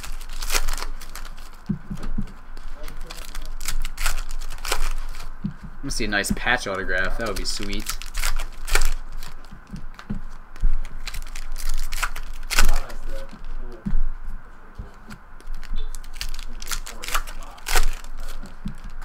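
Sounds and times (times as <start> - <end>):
foil packs tearing and crinkling: 0.0 - 1.7, 2.6 - 5.3, 6.0 - 9.5, 10.7 - 13.3, 15.4 - 19.0
cards snapping and rustling: 0.0 - 5.3, 6.2 - 13.6, 14.9 - 19.0.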